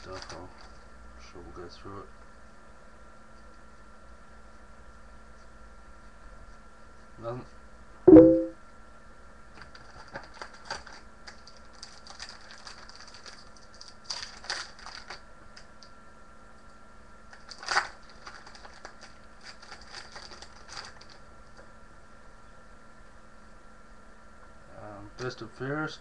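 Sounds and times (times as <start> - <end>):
foil wrapper crinkling: 9.7 - 15.2, 17.3 - 21.2.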